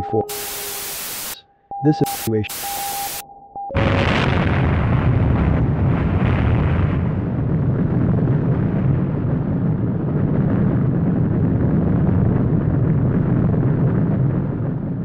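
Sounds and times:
explosion rumble: 3.7 - 15.0.

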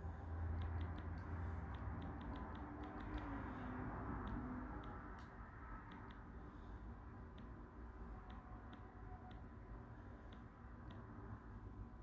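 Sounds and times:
soft high clicks: 0.5 - 3.4, 4.2 - 6.3.

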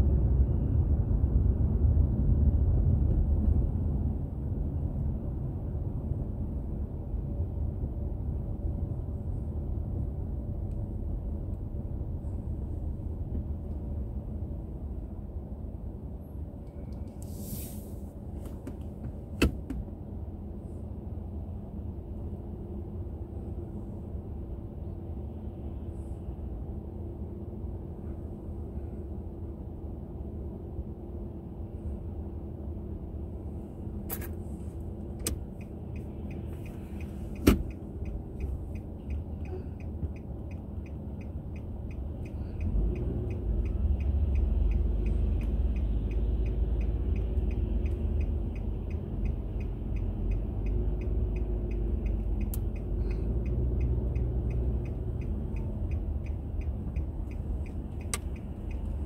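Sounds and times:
car engine and road rumble: 0.0 - 59.0
steady ticking: 35.3 - 59.0.

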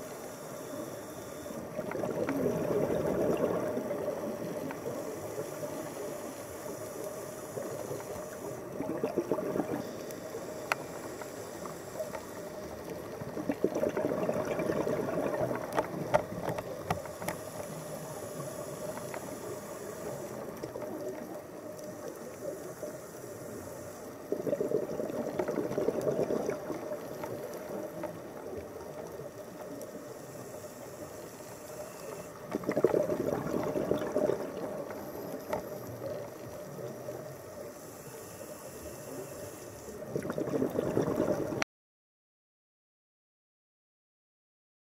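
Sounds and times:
underwater hiss: 0.0 - 41.6
diver exhaling bubbles: 1.7 - 4.6, 8.6 - 10.0, 13.1 - 16.4, 24.3 - 28.0, 32.5 - 35.3, 40.0 - 41.6
faint clicks: 3.4 - 8.6, 9.8 - 13.4, 15.5 - 24.3, 25.2 - 32.8, 34.6 - 40.0.

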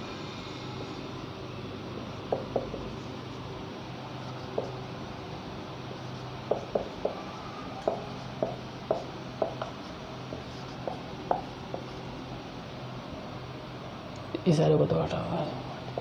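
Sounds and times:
steady low hum: 0.0 - 16.0
marker pen on whiteboard: 2.0 - 12.3.

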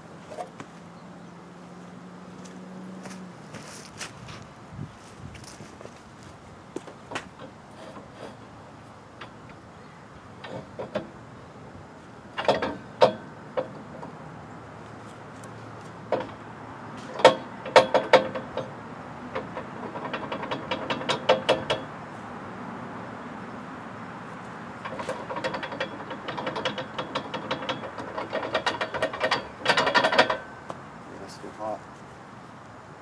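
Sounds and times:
steel jack clanking: 7.0 - 8.6, 10.4 - 11.2, 12.3 - 14.2, 16.0 - 16.4, 17.0 - 22.0, 24.8 - 30.8
rattling clicks: 12.3 - 14.2, 15.4 - 16.4, 17.0 - 21.9, 24.8 - 30.8.

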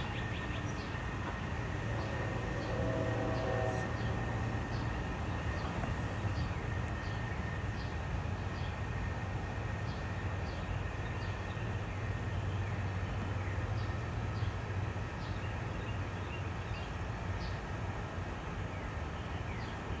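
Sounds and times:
steady low hum: 0.0 - 19.5.

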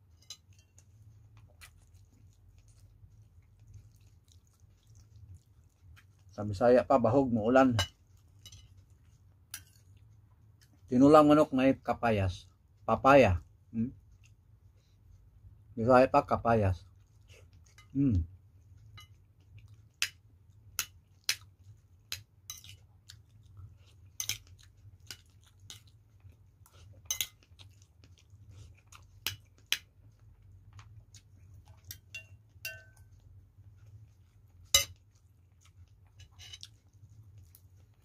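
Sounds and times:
person chewing: 0.0 - 6.6, 16.8 - 38.0
faint low hum: 0.0 - 38.0
spoon clinking against plate: 0.1 - 0.8, 7.8 - 8.8, 18.9 - 19.2, 22.5 - 22.8, 27.1 - 27.4, 31.9 - 33.2, 34.7 - 35.0.

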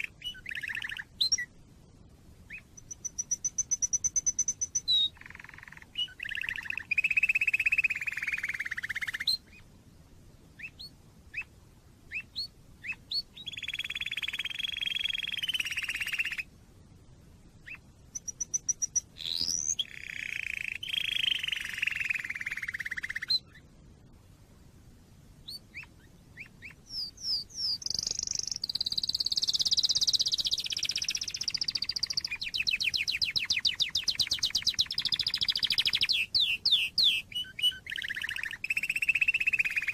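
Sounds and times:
canary singing: 0.0 - 1.5, 2.5 - 9.6, 10.6 - 11.5, 12.1 - 16.5, 17.6 - 23.7, 25.4 - 39.9.

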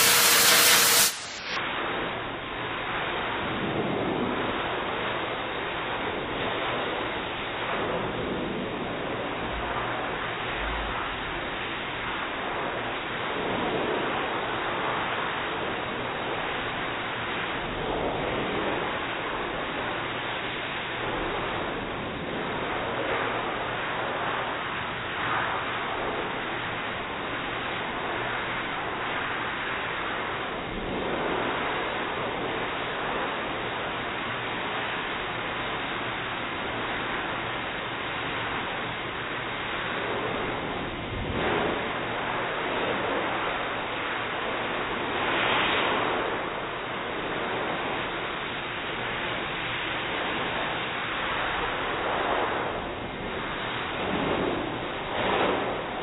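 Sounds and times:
dog dryer blowing air: 0.0 - 1.6.

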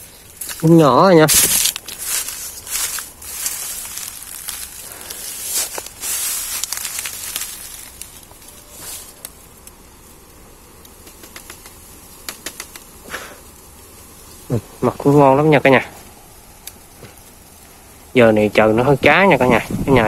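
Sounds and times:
bamboo leaves rustling and crackling: 0.0 - 20.0
bamboo stems snapping: 0.3 - 0.7, 1.3 - 9.8, 10.8 - 13.2, 16.6 - 17.2.

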